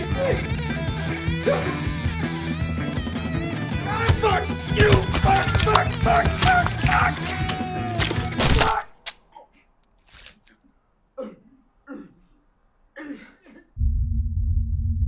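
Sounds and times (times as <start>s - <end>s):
person gasping and grunting: 11.2s - 13.7s.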